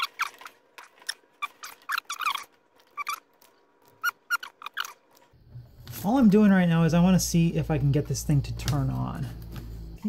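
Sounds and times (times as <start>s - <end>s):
wire stripper squeaks and snips: 0.0s - 5.3s.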